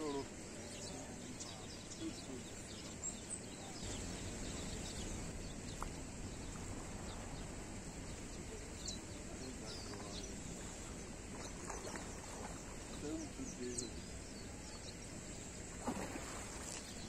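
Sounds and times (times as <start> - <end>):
small birds chirping: 0.0 - 17.0
steady low rushing noise: 2.5 - 11.6.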